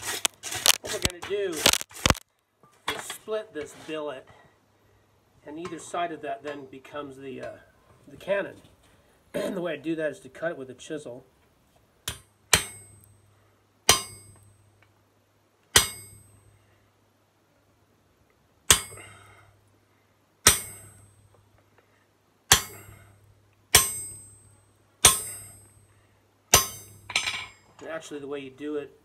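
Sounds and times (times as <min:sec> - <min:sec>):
hammer striking chisel on metal: 0:12.1 - 0:13.0, 0:13.9 - 0:14.6, 0:15.7 - 0:16.4, 0:18.7 - 0:19.0, 0:20.4 - 0:21.0, 0:22.5 - 0:22.9, 0:23.7 - 0:24.4, 0:25.0 - 0:25.7, 0:26.5 - 0:27.6.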